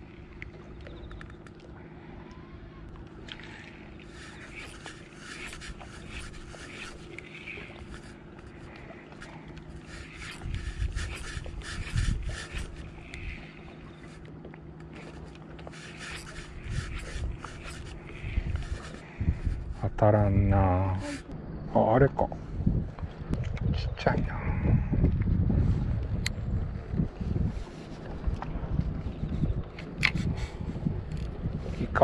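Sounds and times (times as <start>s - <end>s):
faint steady hum: 0.0s - 23.4s.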